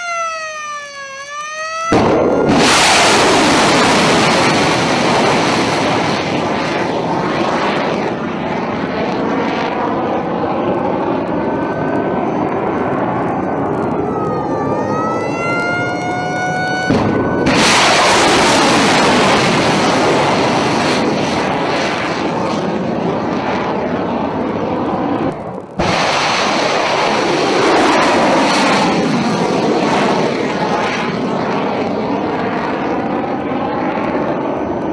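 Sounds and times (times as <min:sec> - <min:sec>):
rocket motor rushing: 0:00.8 - 0:08.3, 0:16.7 - 0:22.4.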